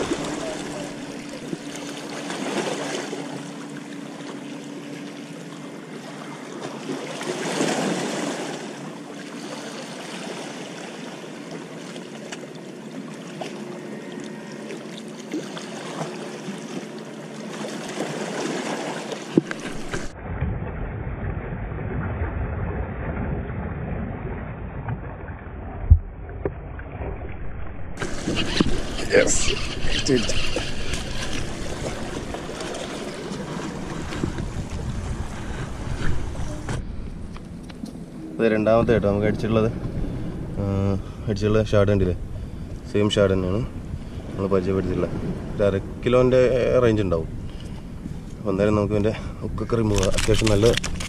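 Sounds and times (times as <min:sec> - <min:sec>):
sea water washing against boulders: 0:00.0 - 0:04.0, 0:06.5 - 0:11.1, 0:17.5 - 0:20.2, 0:28.0 - 0:36.7
low rumble: 0:19.7 - 0:48.2.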